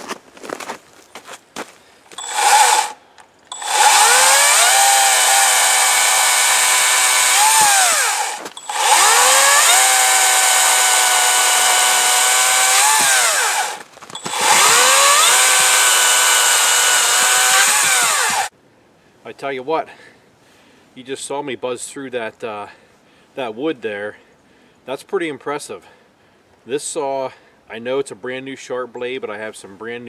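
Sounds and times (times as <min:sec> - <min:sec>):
chain rasping through wood: 0:02.1 - 0:18.5
electric chainsaw motor whine: 0:02.1 - 0:18.5.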